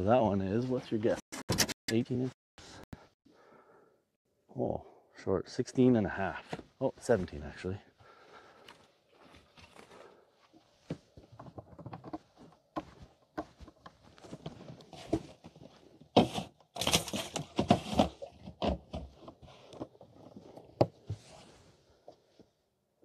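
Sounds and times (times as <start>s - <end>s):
rustling noise: 21.0s - 22.4s.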